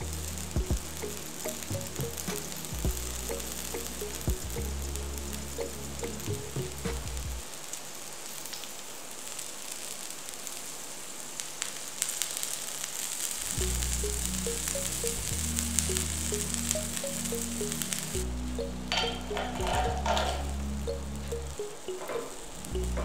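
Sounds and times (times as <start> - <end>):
background music with bass: 0.0 - 7.4, 13.5 - 23.0
oil sizzling and crackling: 0.0 - 23.0.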